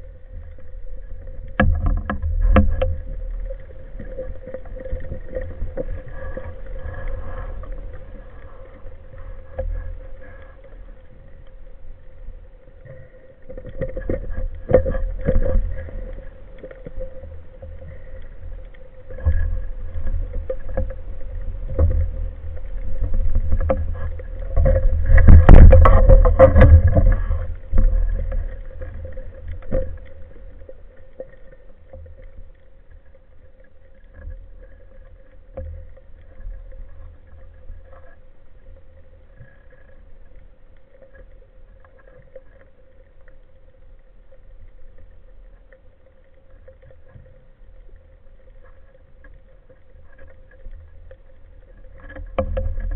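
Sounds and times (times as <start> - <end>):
low underwater rumble: 0.0 - 52.9
gear knocks and clicks: 21.7 - 30.4.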